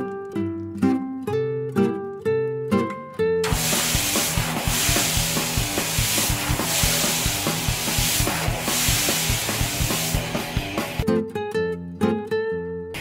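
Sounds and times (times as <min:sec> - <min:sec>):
plucked guitar music: 0:00.0 - 0:13.0
garden hose spraying water: 0:03.4 - 0:11.0.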